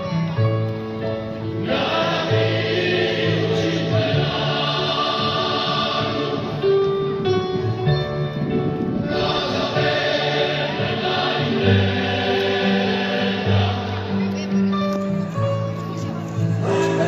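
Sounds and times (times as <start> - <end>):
choirs singing slow song: 1.5 - 7.2, 8.9 - 14.3, 16.6 - 17.0.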